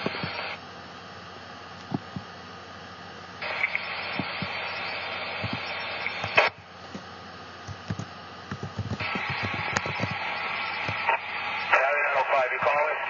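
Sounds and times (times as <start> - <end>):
low crackles and pops: 0.0 - 0.6, 1.2 - 2.6, 3.3 - 13.0
radio squelch burst: 0.0 - 0.6, 3.4 - 6.6, 8.6 - 13.0
radio static hiss: 0.0 - 13.0.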